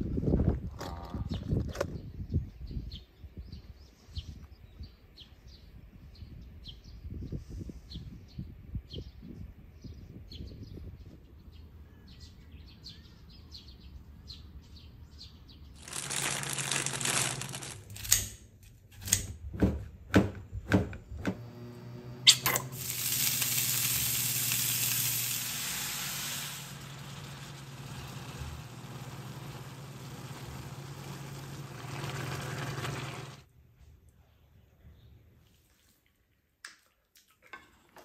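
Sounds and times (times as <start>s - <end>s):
oil hissing in a pan: 22.3s - 33.4s.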